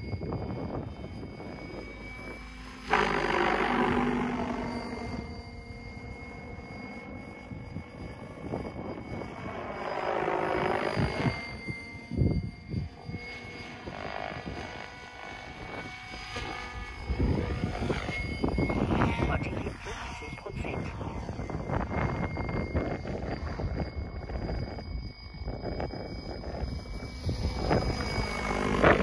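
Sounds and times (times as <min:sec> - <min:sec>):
rc helicopter rotor buzz: 0:00.0 - 0:29.0.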